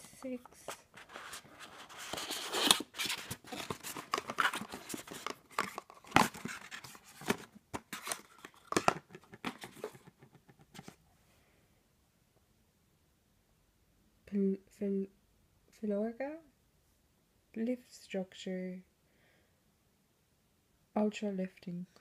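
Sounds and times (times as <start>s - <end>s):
cardboard box scraping and rustling: 1.0s - 8.8s.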